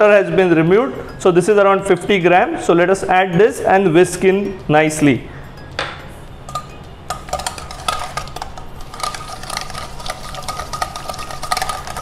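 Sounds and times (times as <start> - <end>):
whisk scraping steel bowl: 6.5 - 12.0.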